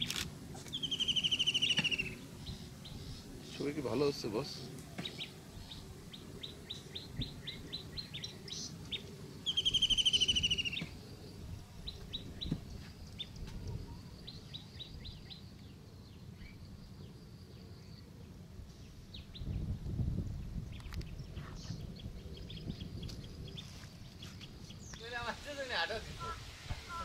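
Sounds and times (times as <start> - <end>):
small birds chirping: 0.0 - 27.0
loud rapid bird trill: 0.7 - 11.0.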